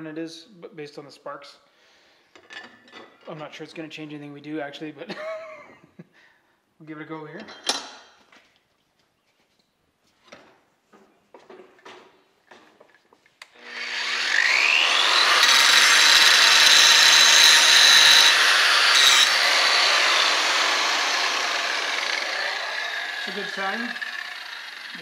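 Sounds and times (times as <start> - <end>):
angle grinder grinding metal: 13.4 - 25.0.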